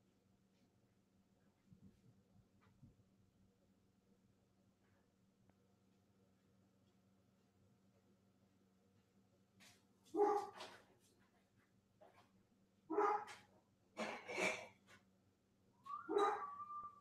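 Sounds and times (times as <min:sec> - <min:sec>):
dog barking: 0:10.1 - 0:10.7, 0:12.9 - 0:13.4, 0:15.9 - 0:17.0.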